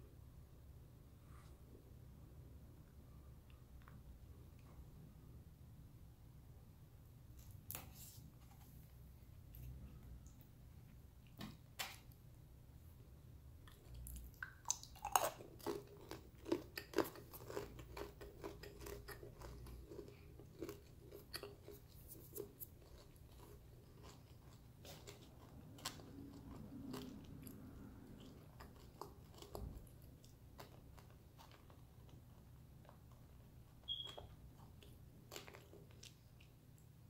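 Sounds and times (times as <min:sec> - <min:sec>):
chewing gritty clay: 0:13.7 - 0:36.9.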